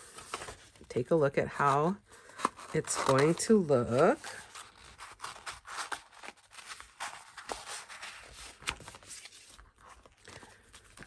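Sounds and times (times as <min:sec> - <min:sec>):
journal rustling and tapping: 0:07.0 - 0:11.0.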